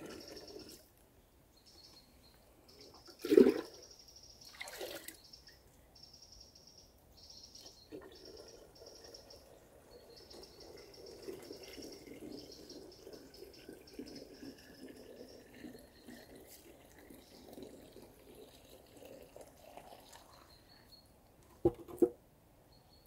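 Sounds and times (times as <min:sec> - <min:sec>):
songbird singing: 0:00.0 - 0:21.6, 0:22.6 - 0:23.0
water pouring into a jug: 0:03.0 - 0:05.2, 0:07.8 - 0:20.9.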